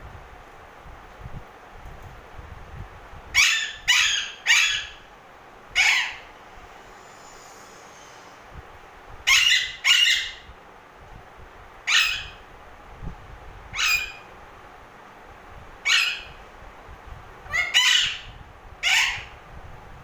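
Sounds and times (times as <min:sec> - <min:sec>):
parakeet squawking: 0:03.4 - 0:05.0, 0:05.8 - 0:06.3, 0:09.3 - 0:10.5, 0:11.9 - 0:12.4, 0:13.8 - 0:14.2, 0:15.8 - 0:16.4, 0:17.5 - 0:19.3.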